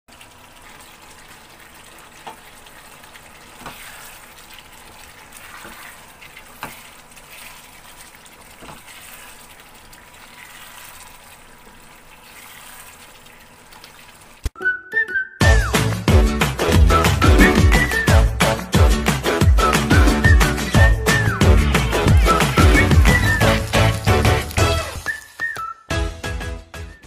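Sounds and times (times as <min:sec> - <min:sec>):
sauce simmering and bubbling: 0:00.1 - 0:14.6, 0:19.5 - 0:25.6.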